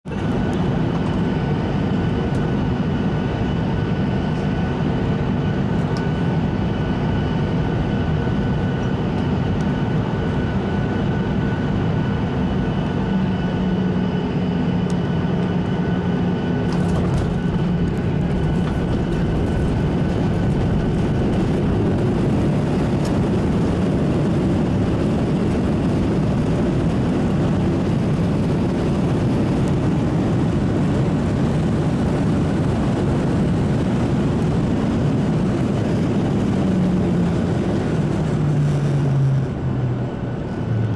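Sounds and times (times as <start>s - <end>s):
jet engine whine in cabin: 0.0s - 40.9s
runway rolling rumble: 16.4s - 40.9s.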